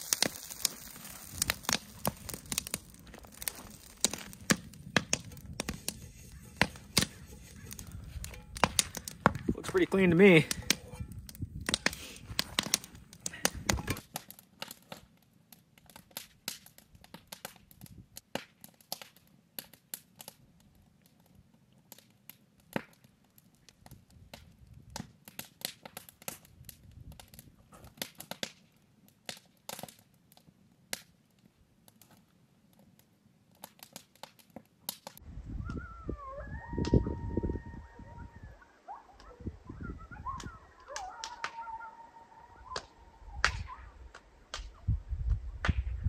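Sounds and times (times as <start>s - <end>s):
wood fire crackling: 0.0s - 45.9s
dog howling: 35.6s - 44.0s.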